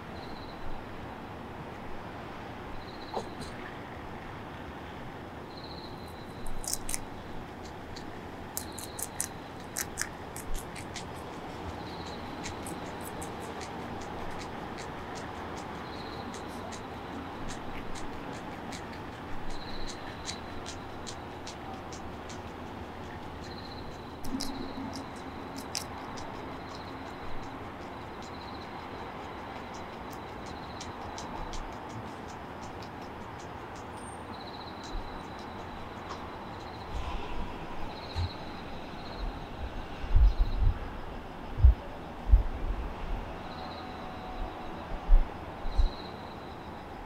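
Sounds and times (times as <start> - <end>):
crickets chirping: 0.0 - 47.0
steady background hum: 0.0 - 47.0
sharp clicks close by: 6.4 - 36.8
cricket ringing trill: 19.5 - 31.8.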